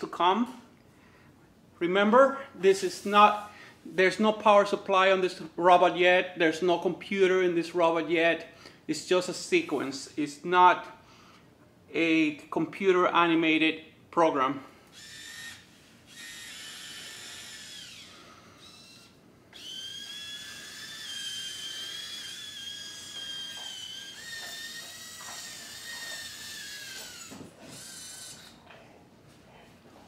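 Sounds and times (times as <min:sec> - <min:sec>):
servo motors whining: 0:14.9 - 0:28.6.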